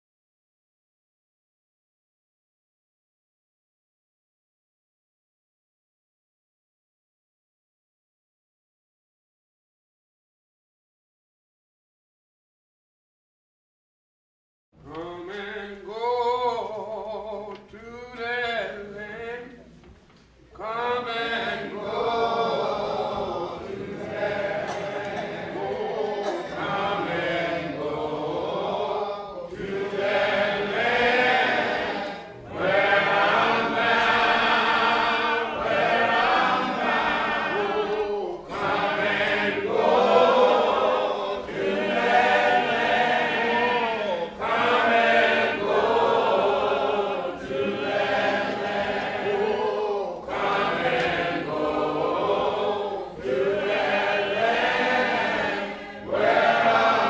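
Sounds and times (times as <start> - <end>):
choir singing: 20.6 - 57.0.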